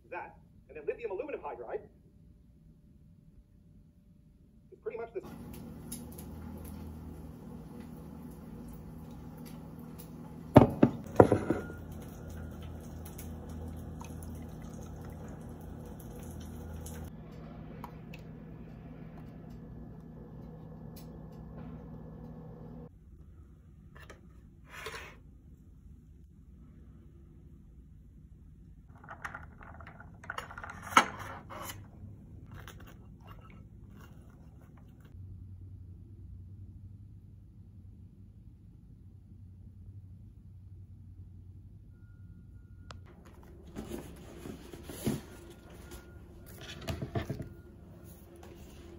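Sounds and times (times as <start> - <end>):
milk pouring over ice: 11.1 - 17.1.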